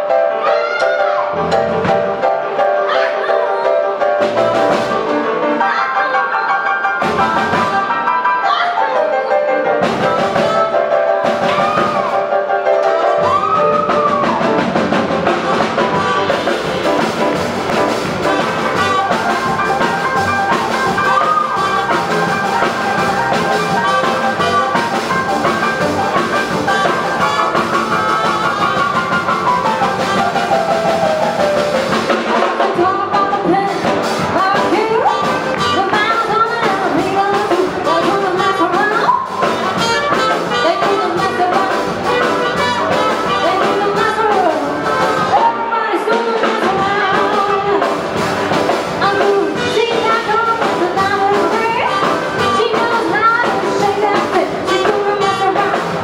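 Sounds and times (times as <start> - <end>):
drum kit: 0.0 - 8.5, 9.6 - 56.0
piano: 0.0 - 56.0
trumpet: 9.9 - 30.9, 34.4 - 36.3, 37.8 - 48.5, 49.1 - 56.0
upright bass: 13.2 - 32.1, 32.7 - 45.5, 46.6 - 56.0
saxophone: 15.2 - 30.7, 34.4 - 44.5, 49.0 - 56.0
woman singing: 32.4 - 48.0, 49.0 - 56.0.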